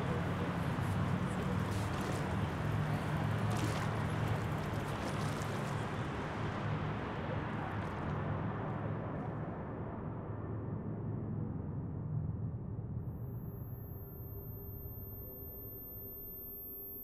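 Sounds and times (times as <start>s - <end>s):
outdoor city noise: 0.0s - 17.0s.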